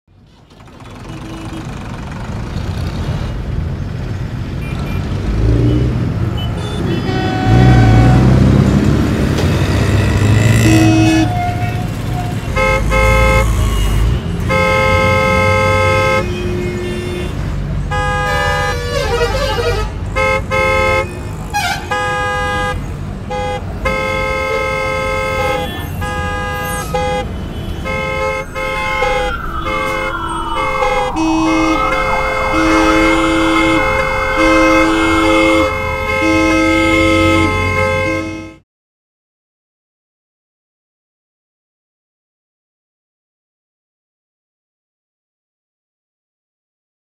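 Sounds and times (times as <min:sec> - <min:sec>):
traffic rumble: 0:00.1 - 0:38.6
vehicle horns honking: 0:00.8 - 0:02.1, 0:04.6 - 0:08.8, 0:09.4 - 0:38.6
siren wailing: 0:27.9 - 0:37.4.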